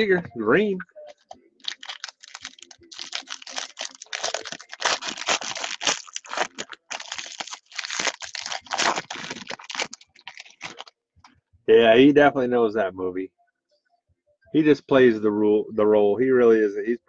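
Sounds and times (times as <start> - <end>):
foil wrapper tearing and crinkling: 1.6 - 10.9.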